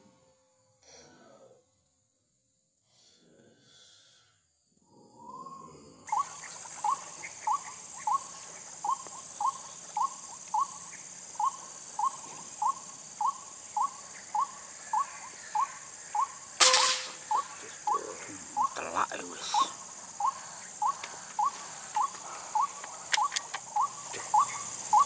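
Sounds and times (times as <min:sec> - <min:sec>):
high insect drone: 0:00.0 - 0:25.0
sharp gunshot: 0:16.6 - 0:17.4.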